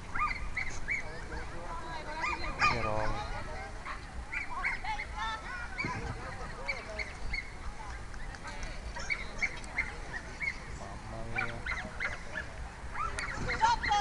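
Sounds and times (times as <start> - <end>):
dogs yapping: 0.1 - 1.5, 2.1 - 5.2, 8.9 - 10.6, 11.3 - 14.0.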